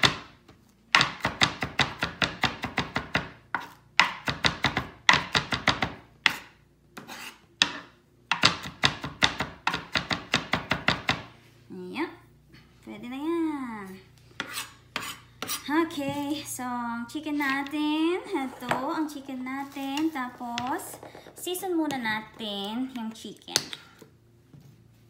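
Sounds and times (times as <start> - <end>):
knife chopping on cutting board: 0.9 - 11.3, 14.4 - 15.7.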